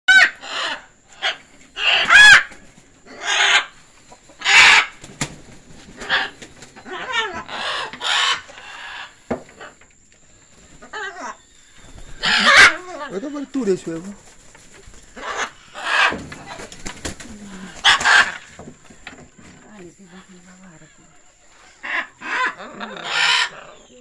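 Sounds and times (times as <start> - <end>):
macaws squawking: 0.1 - 5.1, 5.9 - 9.8, 10.5 - 18.6, 20.0 - 24.0.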